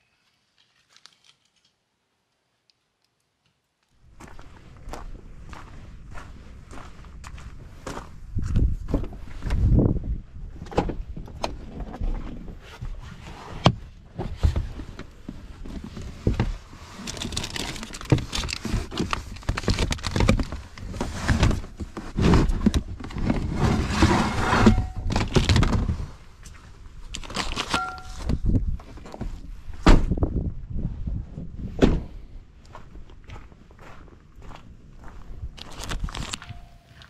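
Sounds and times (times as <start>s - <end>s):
clatter and rustle of rummaging: 14.2s - 26.1s, 27.1s - 29.4s, 35.7s - 37.0s.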